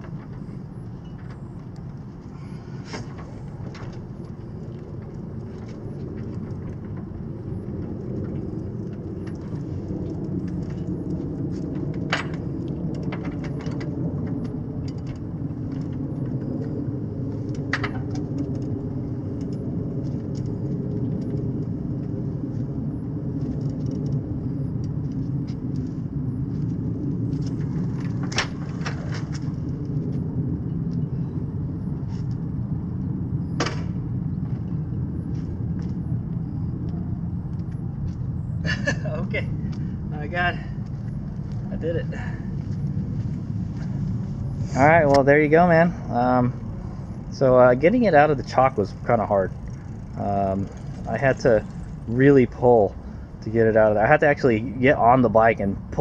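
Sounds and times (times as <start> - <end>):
low outdoor rumble: 0.0 - 56.0.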